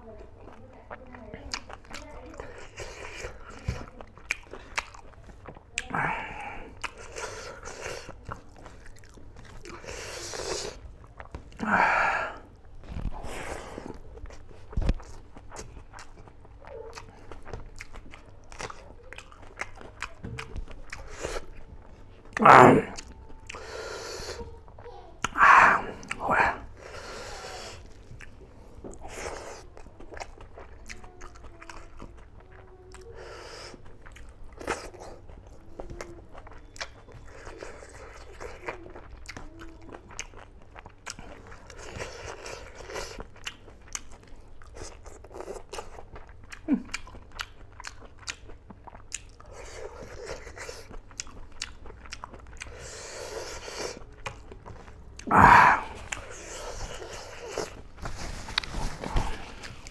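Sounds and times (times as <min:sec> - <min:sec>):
chewing and biting food: 0:00.2 - 0:59.9
wet mouth clicks: 0:25.2 - 0:26.6.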